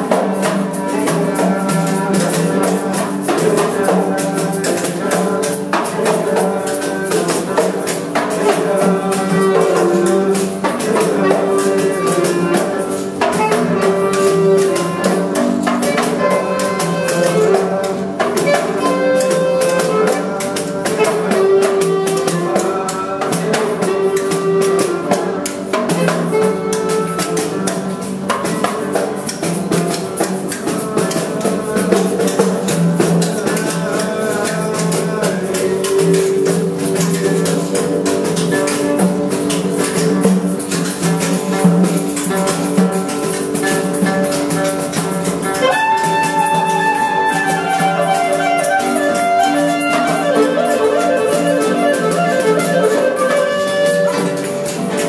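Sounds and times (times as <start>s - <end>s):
shaken percussion rhythm: 0.0s - 55.0s
held-note melody: 45.5s - 55.0s.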